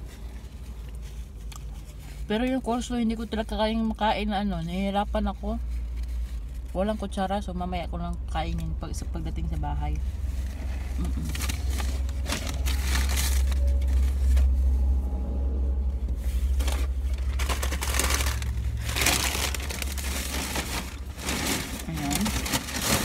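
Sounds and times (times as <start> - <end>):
low steady hum: 0.0 - 23.0
food packaging crinkling: 10.5 - 14.4, 16.6 - 23.0.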